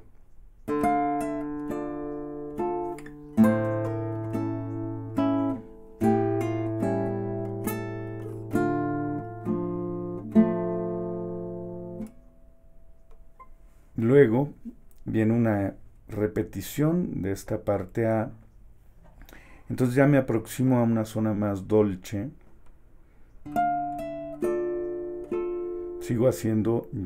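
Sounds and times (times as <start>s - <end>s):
classical guitar playing: 0.6s - 13.9s, 23.4s - 27.0s.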